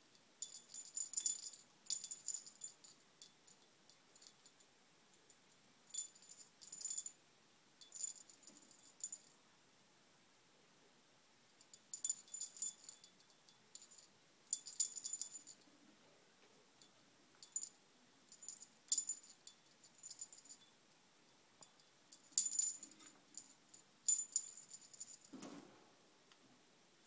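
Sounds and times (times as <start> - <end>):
small metal bell jingling: 0.1 - 5.3, 5.9 - 7.2, 7.8 - 9.4, 11.6 - 15.6, 16.8 - 20.8, 21.6 - 25.4.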